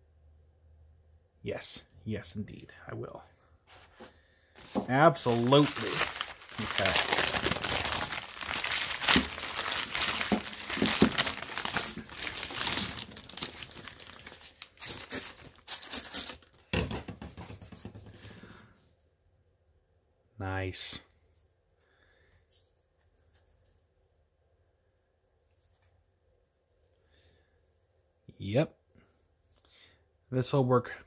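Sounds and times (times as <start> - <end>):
newspaper crumpling: 4.6 - 16.4.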